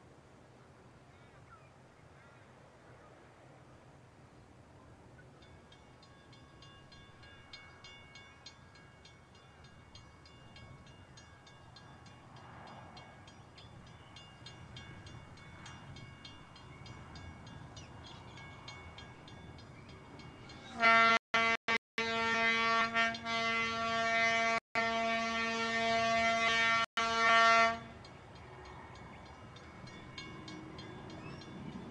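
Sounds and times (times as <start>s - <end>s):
distant railcar rumble: 0.0s - 31.9s
railcar horn: 20.7s - 28.0s.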